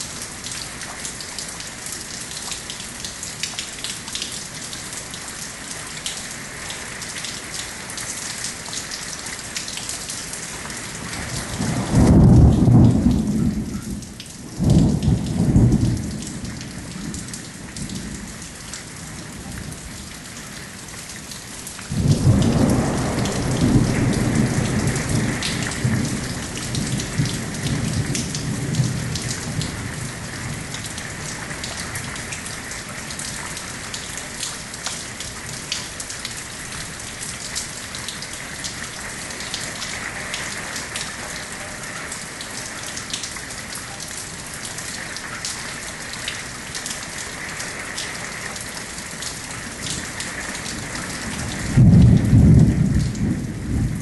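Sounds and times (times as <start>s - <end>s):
raindrops clicking close by: 0.0s - 54.0s
steady rain falling: 0.0s - 54.0s
thunder cracking and rumbling: 11.0s - 18.4s, 21.9s - 31.4s, 50.6s - 54.0s.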